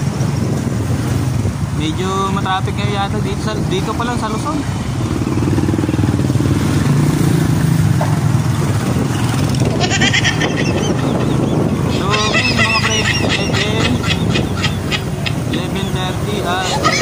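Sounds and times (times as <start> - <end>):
high quick honking calls: 9.7 - 17.0.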